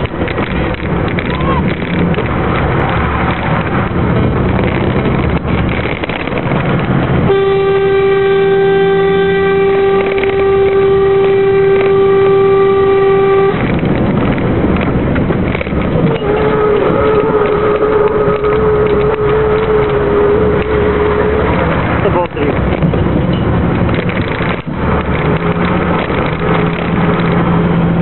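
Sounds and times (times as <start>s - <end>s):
truck engine and road noise: 0.0s - 28.0s
truck horn: 7.2s - 14.2s, 15.9s - 22.3s.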